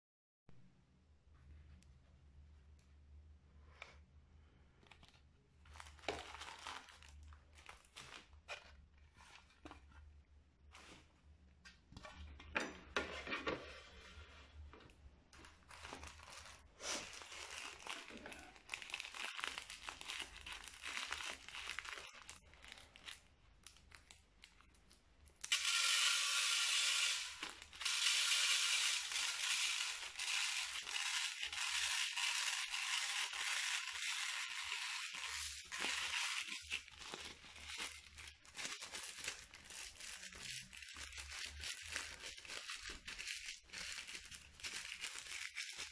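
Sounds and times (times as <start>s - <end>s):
plastic bags crinkling: 4.8s - 11.2s, 15.3s - 25.5s, 26.8s - 45.9s
beads pouring into plastic bowl: 25.4s - 36.8s.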